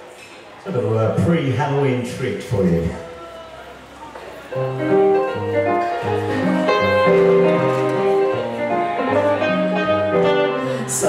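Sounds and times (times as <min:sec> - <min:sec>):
electric guitar and keyboard blues: 0:04.6 - 0:11.0.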